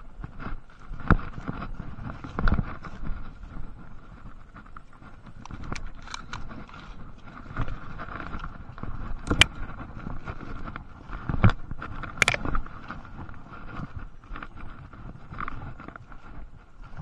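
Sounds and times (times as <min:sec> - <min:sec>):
footsteps through undergrowth: 0:00.0 - 0:17.0
twigs snapping: 0:05.4 - 0:10.8, 0:11.4 - 0:13.0.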